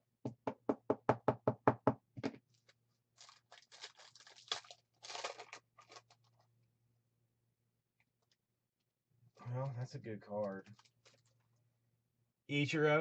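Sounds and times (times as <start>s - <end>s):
foil pack crinkling and tearing: 2.6s - 6.5s, 10.6s - 11.4s.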